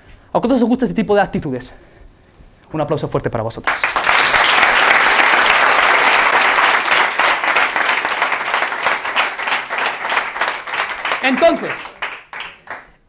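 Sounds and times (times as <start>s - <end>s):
audience clapping: 3.6s - 13.0s.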